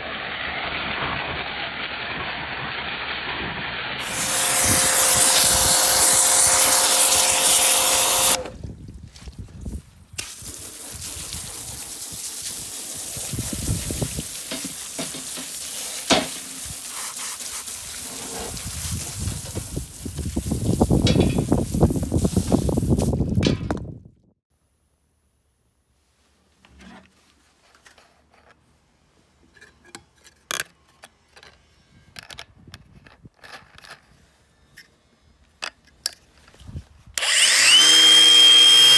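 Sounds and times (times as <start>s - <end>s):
pressure washer jet hissing: 0.0s - 8.5s, 10.2s - 23.2s.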